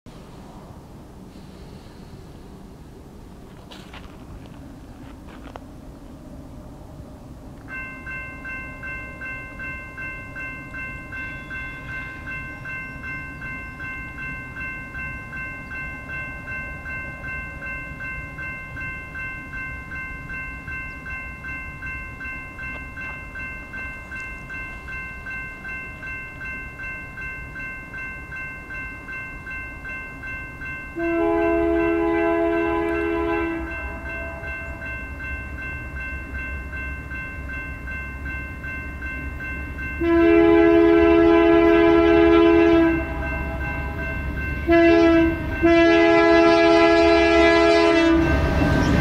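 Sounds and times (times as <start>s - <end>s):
crossing warning bell ringing: 7.6s - 49.0s
locomotive air horn: 31.0s - 34.5s, 40.0s - 44.0s, 44.6s - 48.4s.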